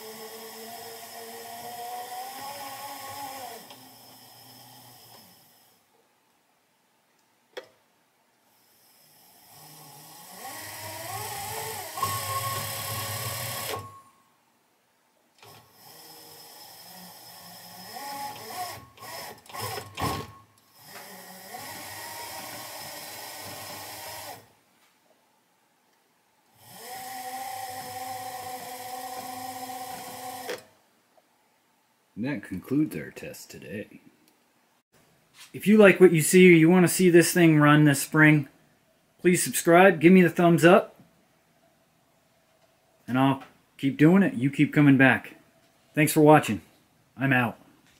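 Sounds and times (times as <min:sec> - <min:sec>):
electric motor whine: 0:26.6 - 0:30.7.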